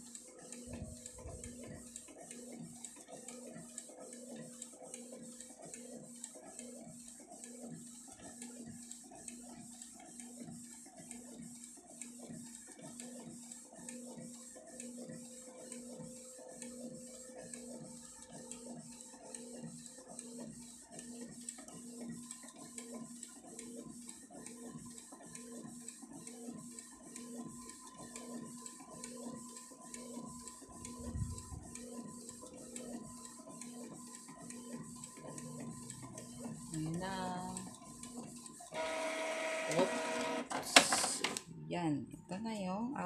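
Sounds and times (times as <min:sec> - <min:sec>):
printer carriage shuttling: 0:38.8 - 0:41.4.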